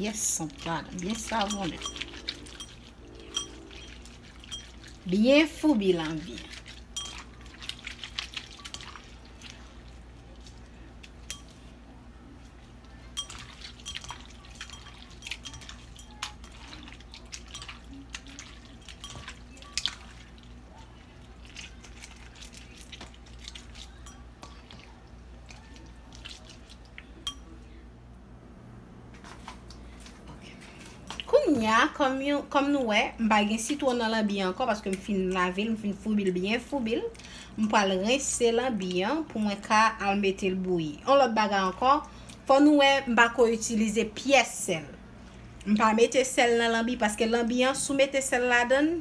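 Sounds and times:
clinks against glass bowl: 0:01.2 - 0:04.8, 0:06.9 - 0:07.4, 0:11.2 - 0:11.6, 0:13.2 - 0:16.8, 0:18.8 - 0:19.4, 0:23.9 - 0:24.7, 0:27.2 - 0:27.6
wet squishing of meat by hand: 0:06.0 - 0:11.4, 0:12.5 - 0:27.2.

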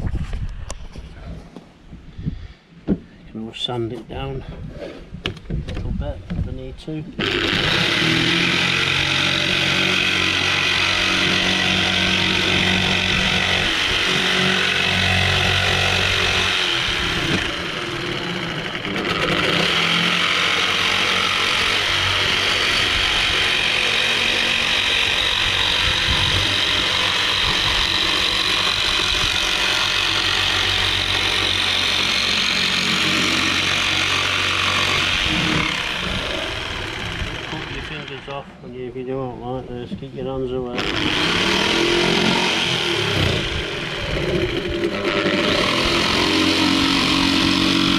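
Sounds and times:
jigsaw cutting wood: 0:07.2 - 0:38.4, 0:40.7 - 0:47.9.

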